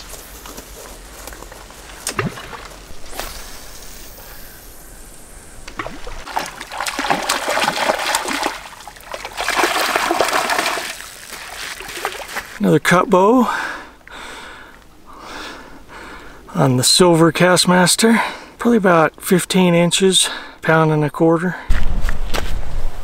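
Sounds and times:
fish splashing in water: 0:05.6 - 0:12.6.

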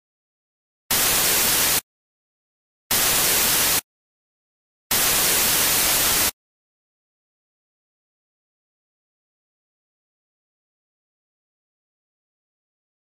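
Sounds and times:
harsh static hiss: 0:00.9 - 0:01.8, 0:02.9 - 0:03.8, 0:04.9 - 0:06.4.

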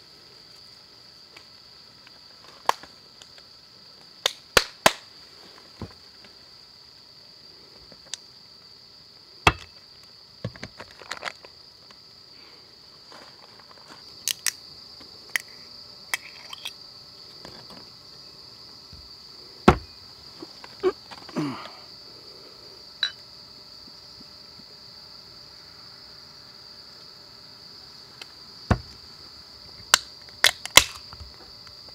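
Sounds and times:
crickets chirring: 0:00.0 - 0:31.9.

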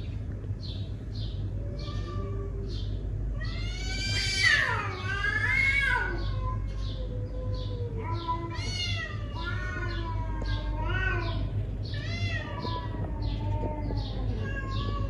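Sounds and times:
cat yowling: 0:01.6 - 0:15.0
bird chirping: 0:05.9 - 0:15.0.

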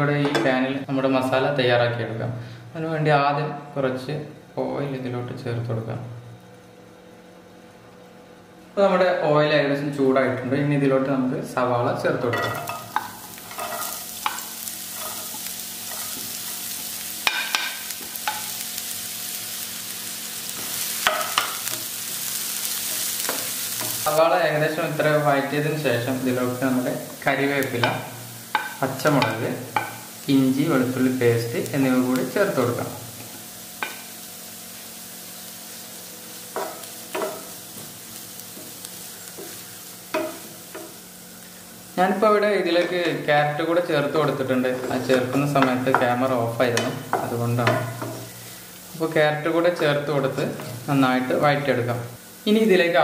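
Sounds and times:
onions sizzling in oil: 0:11.9 - 0:53.0.

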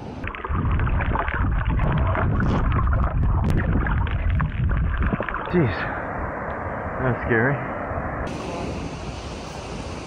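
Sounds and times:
bubbles clicking against camera housing: 0:00.2 - 0:05.5.

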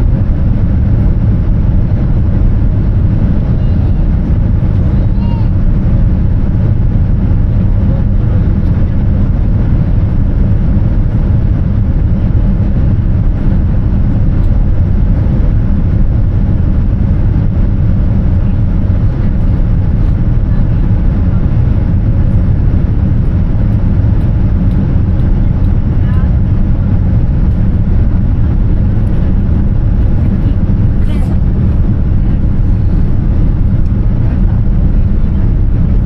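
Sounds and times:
airliner cabin rumble: 0:00.0 - 0:36.0.

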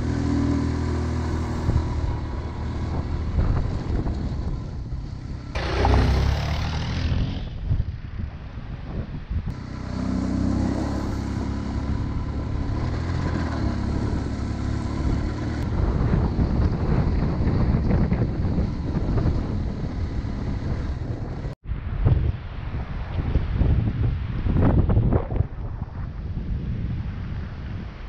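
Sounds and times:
motorcycle engine running: 0:00.0 - 0:08.0, 0:09.5 - 0:21.6.

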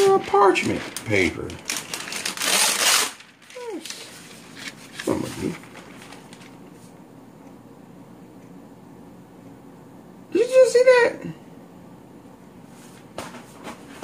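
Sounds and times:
paper tearing: 0:00.0 - 0:06.6.

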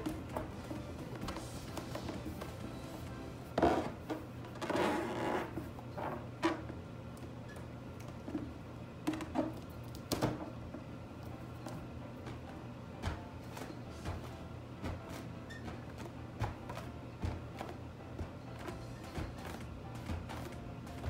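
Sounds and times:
rubber balloon rubbing and stretching: 0:03.5 - 0:06.7.

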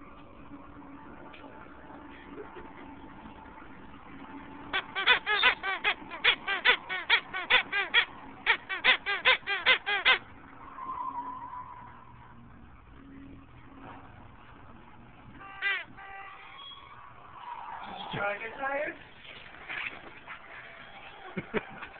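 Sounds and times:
squeaky toy squeaking: 0:04.7 - 0:10.2, 0:15.4 - 0:16.8.

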